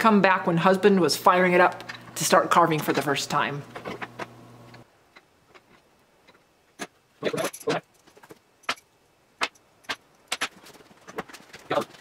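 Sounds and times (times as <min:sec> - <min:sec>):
metal tools clinking: 0:06.8 - 0:12.0.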